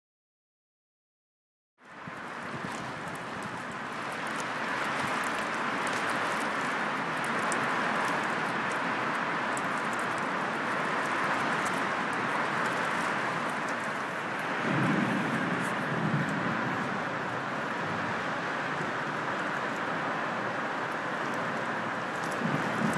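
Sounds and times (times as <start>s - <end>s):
rain and wind storm: 1.8s - 22.9s
small ticks: 2.4s - 14.5s, 22.1s - 22.9s.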